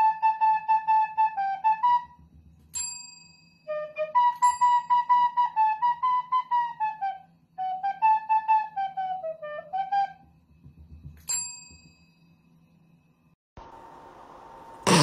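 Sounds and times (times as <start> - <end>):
flute-like melody: 0.0 - 2.4, 3.7 - 10.4.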